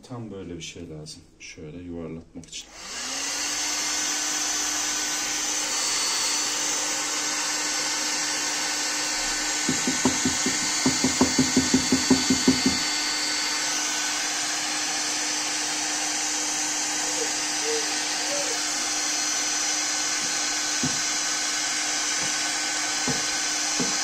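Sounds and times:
hot air gun blowing: 0:02.8 - 0:24.0.

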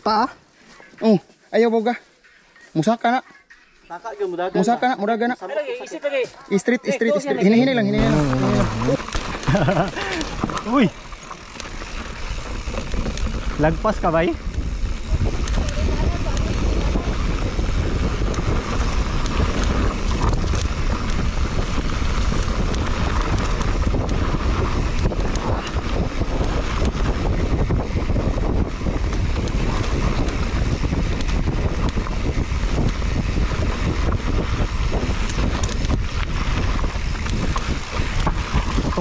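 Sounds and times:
mountain bike rumble on dirt: 0:07.0 - 0:39.0
wind buffeting microphone: 0:07.4 - 0:39.0
bike knocks and rattles: 0:08.1 - 0:39.0.

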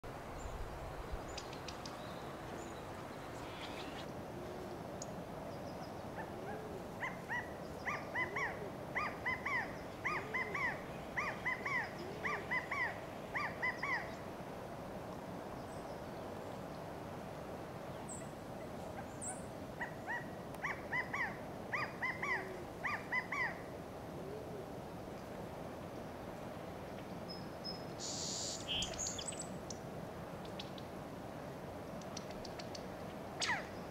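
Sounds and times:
quail contact calls: 0:03.4 - 0:04.7.

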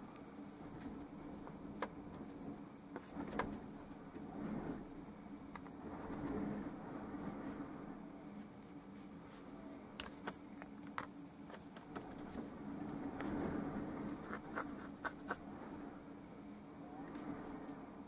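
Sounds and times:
low room hum: 0:00.0 - 0:18.0
bristle brush scratching paint: 0:14.1 - 0:15.4.

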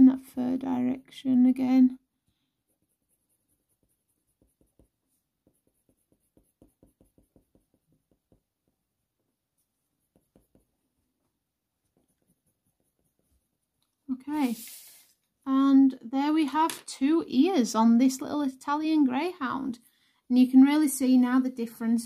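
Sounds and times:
pencil scratching on paper: 0:02.2 - 0:15.0.

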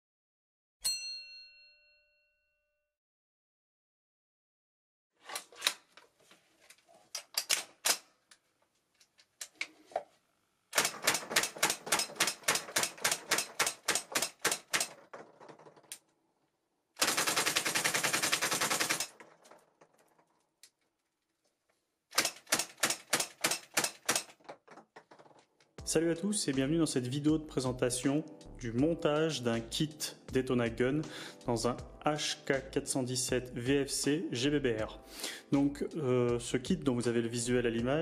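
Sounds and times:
airsoft rifle firing: 0:10.8 - 0:14.9, 0:22.1 - 0:24.3.

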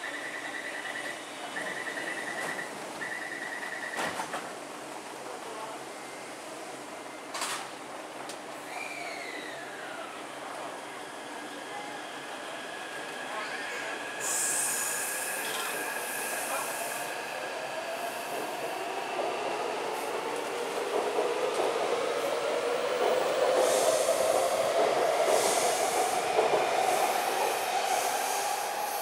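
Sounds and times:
train wheels on rail: 0:01.0 - 0:04.9, 0:07.2 - 0:09.5, 0:10.4 - 0:29.0.

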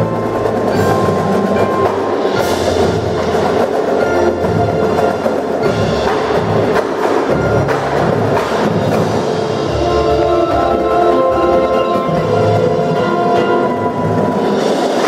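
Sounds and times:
mallet percussion: 0:00.0 - 0:15.0
marching drums: 0:00.0 - 0:15.0.

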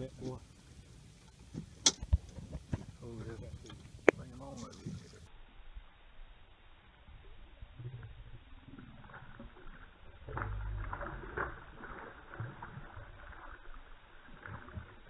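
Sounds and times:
water splashing: 0:08.1 - 0:15.0.

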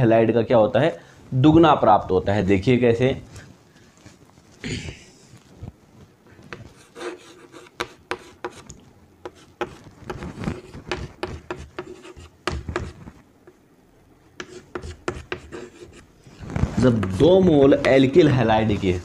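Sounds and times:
chalk writing on chalkboard: 0:06.5 - 0:08.6, 0:09.2 - 0:13.1, 0:14.4 - 0:16.1.

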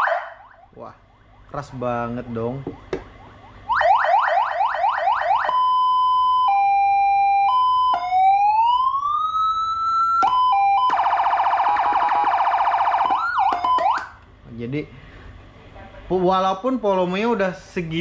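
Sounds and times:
siren cycling through tones: 0:00.0 - 0:14.2.

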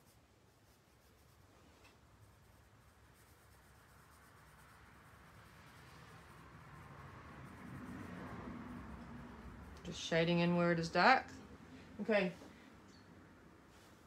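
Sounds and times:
pencil scratching on paper: 0:00.0 - 0:10.5.

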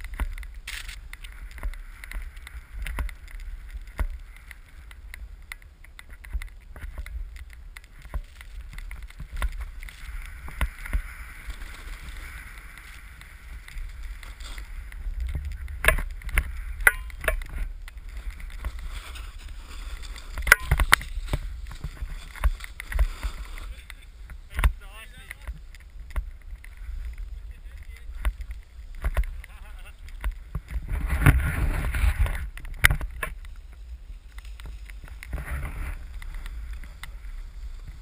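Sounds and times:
low wind rumble: 0:00.0 - 0:38.0
snowboard scraping on snow: 0:08.2 - 0:16.8, 0:17.7 - 0:24.6, 0:30.6 - 0:32.6, 0:33.6 - 0:38.0.

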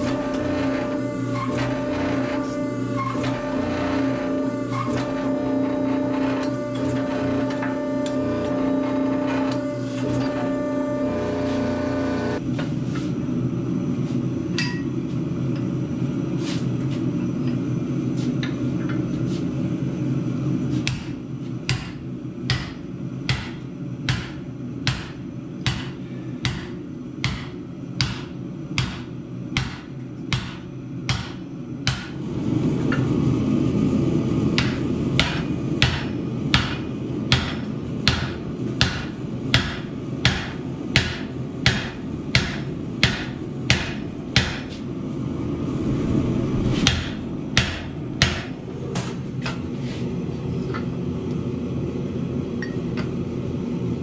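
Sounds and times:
low machine hum: 0:00.0 - 0:54.0
hammer striking metal: 0:20.9 - 0:32.2, 0:34.6 - 0:44.8, 0:46.8 - 0:49.2.

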